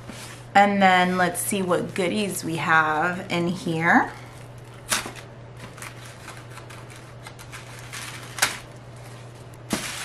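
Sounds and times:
sharp paper crackle: 0:04.4 - 0:10.0
tissue paper crinkling: 0:05.6 - 0:10.0.

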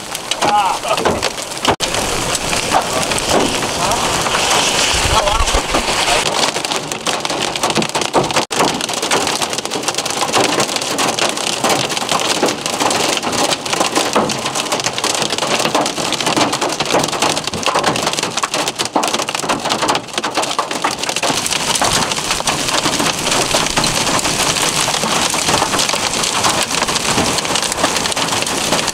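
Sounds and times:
heavy rain and hail clattering: 0:00.0 - 0:28.9.

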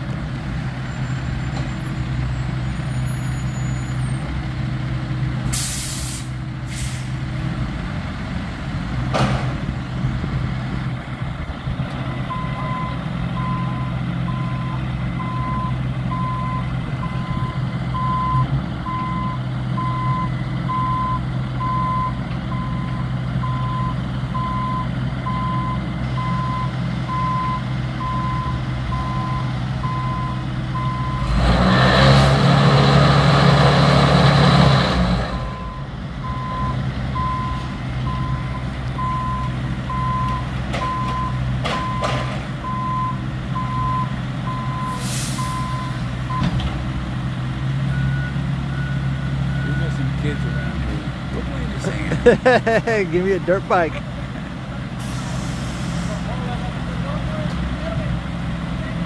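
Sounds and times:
heavy vehicle engine running: 0:00.0 - 0:59.0
air brake hiss: 0:05.5 - 0:07.2, 0:44.9 - 0:45.6, 0:55.0 - 0:56.3
reversing alarm beeping: 0:12.3 - 0:31.4, 0:35.5 - 0:46.5, 0:47.9 - 0:50.8.

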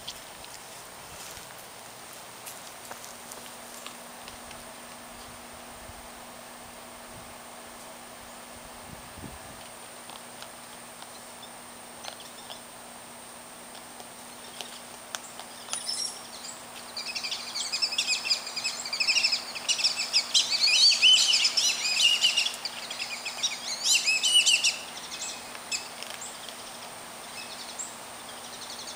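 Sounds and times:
birds chirping: 0:11.0 - 0:12.8, 0:14.1 - 0:28.9.

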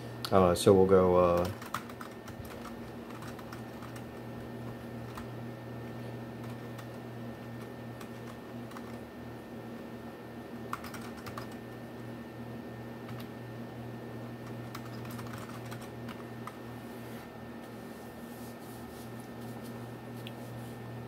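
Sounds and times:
steady low hum: 0:00.0 - 0:21.0
keyboard typing: 0:01.3 - 0:04.3, 0:05.0 - 0:05.3, 0:06.4 - 0:09.0, 0:10.7 - 0:11.6, 0:13.0 - 0:13.3, 0:14.4 - 0:16.6.

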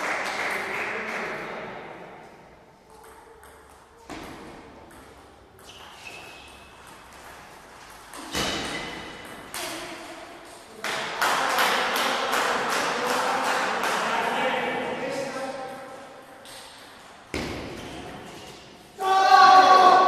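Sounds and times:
crowd shouting and cheering: 0:19.0 - 0:20.0.

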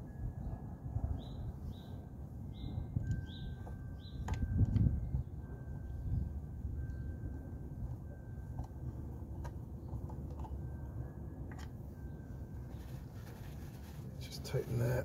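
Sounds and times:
steady low rumble: 0:00.0 - 0:15.0.

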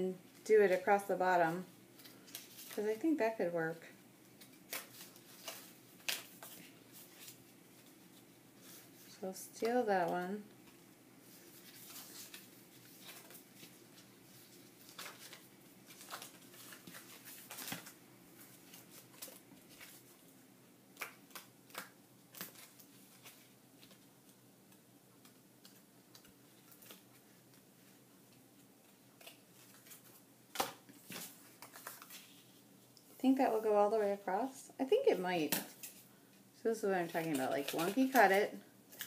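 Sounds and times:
paper rustling: 0:04.4 - 0:09.1, 0:10.6 - 0:20.3, 0:28.8 - 0:32.6.

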